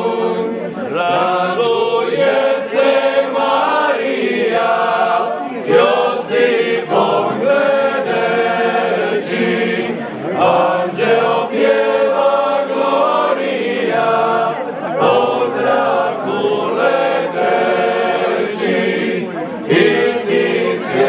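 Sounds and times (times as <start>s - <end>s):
choir singing held chords: 0.0s - 21.0s.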